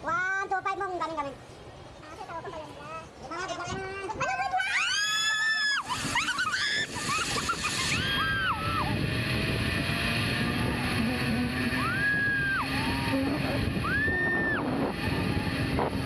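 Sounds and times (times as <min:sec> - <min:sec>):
wind on microphone: 0:05.8 - 0:16.0.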